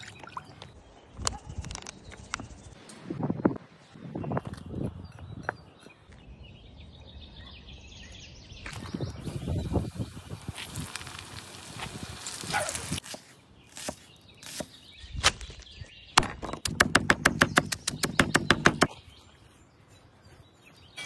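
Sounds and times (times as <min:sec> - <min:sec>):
knife chopping on wooden board: 0:16.2 - 0:19.0.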